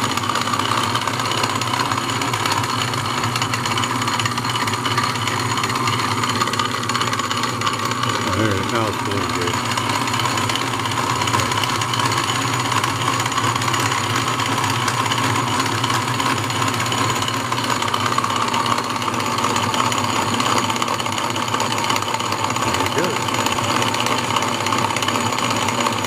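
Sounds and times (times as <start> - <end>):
lathe whirring: 0.0 - 26.0.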